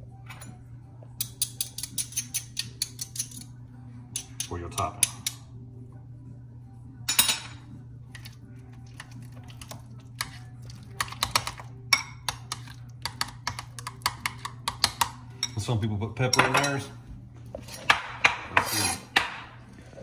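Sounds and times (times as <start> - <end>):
metal spoon scraping glass bowl: 18.6 - 19.1.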